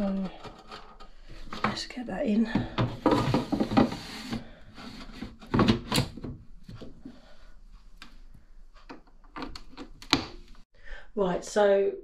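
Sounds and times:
drawer knocking and clicking: 2.5 - 4.1, 5.2 - 6.4.

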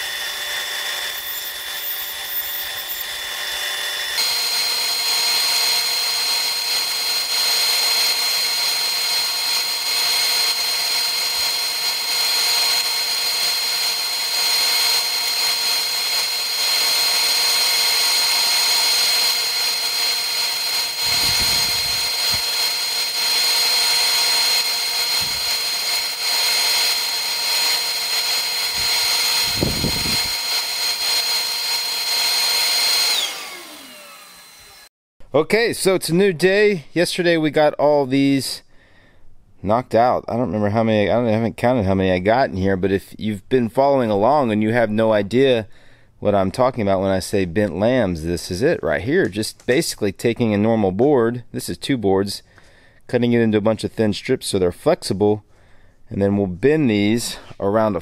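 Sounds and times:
bandsaw whining: 0.0 - 34.9.

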